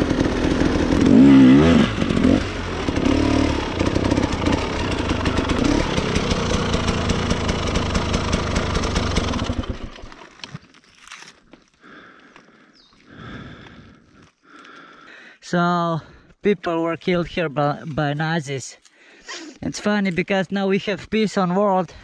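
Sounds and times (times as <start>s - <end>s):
dirt bike engine revving: 0.0s - 10.1s.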